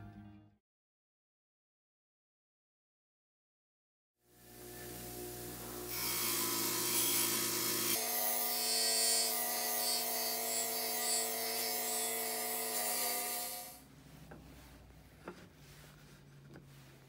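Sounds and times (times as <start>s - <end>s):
grinder motor hum: 4.4s - 13.8s.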